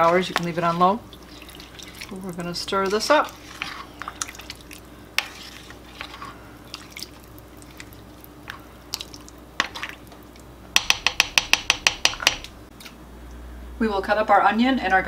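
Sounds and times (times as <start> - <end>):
soup sloshing: 0.0 - 10.6.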